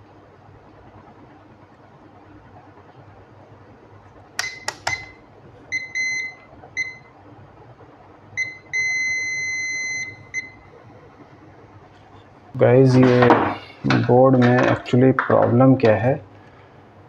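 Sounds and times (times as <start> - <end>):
multimeter beeping: 4.4 - 7.1, 8.4 - 10.6.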